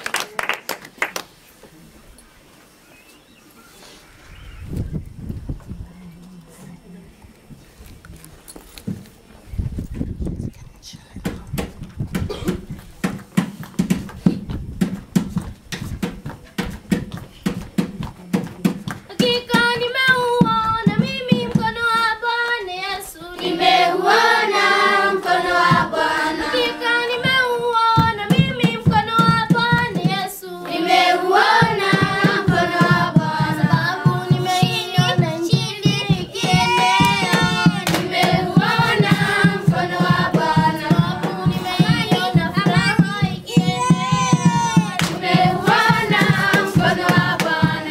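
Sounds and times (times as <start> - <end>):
rhythmic hand clapping: 0.0 - 1.4, 11.2 - 21.8, 23.3 - 47.9
children singing in unison: 19.2 - 47.9.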